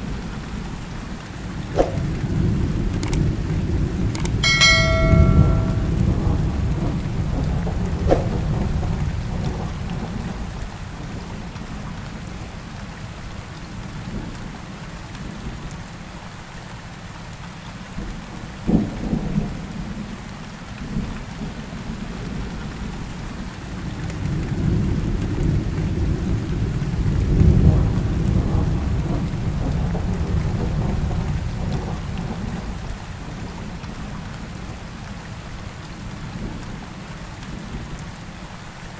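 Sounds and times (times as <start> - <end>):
steady rain: 0.0 - 38.9
rolling thunder: 5.1 - 11.4.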